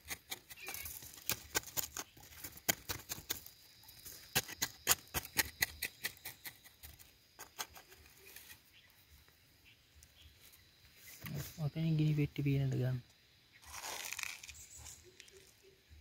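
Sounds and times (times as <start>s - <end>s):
hand tool scraping gravelly soil: 0.0s - 8.8s, 13.6s - 15.6s.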